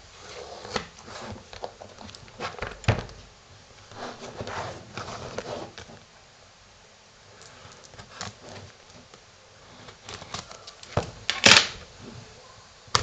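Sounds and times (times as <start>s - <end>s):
plastic crinkling: 9.8s - 11.9s.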